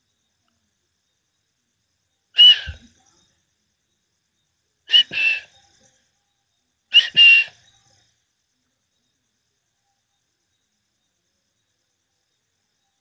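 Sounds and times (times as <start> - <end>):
person whistling: 4.9 - 5.4, 7.0 - 7.5.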